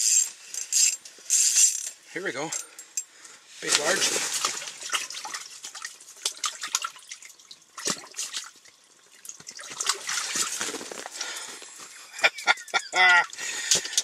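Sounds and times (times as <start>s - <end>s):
water splashing and dripping: 3.7s - 11.5s.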